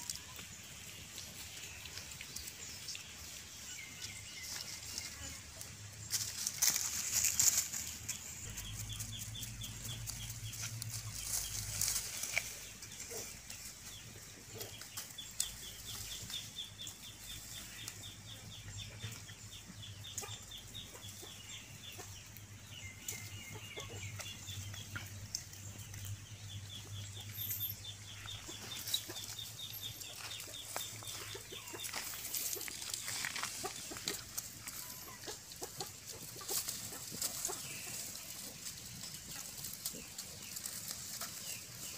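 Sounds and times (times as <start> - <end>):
pigs snuffling in leaves: 0.0 - 16.5, 28.3 - 35.4
leaves rustling and crackling: 0.0 - 16.6, 28.2 - 41.9.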